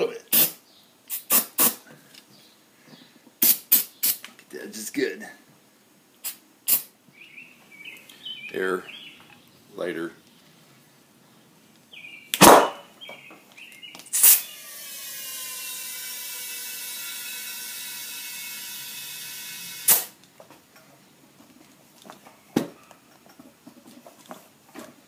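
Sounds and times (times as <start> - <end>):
compressed air hissing into tire: 0.3 - 1.8, 3.4 - 4.2, 6.2 - 6.9, 14.1 - 15.3, 16.2 - 20.2.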